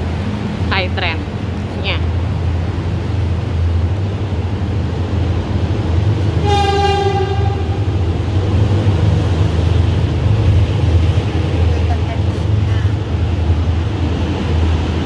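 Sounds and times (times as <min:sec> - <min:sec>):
low rumble in station concourse: 0:00.0 - 0:15.0
short horn tone: 0:06.4 - 0:07.7.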